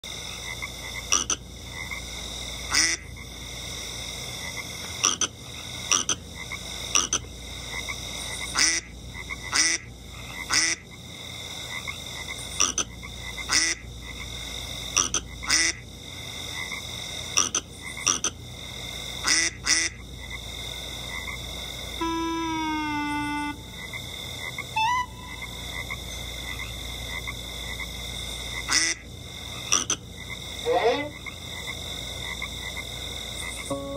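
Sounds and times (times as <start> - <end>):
frog croaking: 0.1 - 33.9
steady high whine: 21.7 - 26.8, 33.0 - 33.9
falling musical note: 22.0 - 23.8, 24.8 - 25.6.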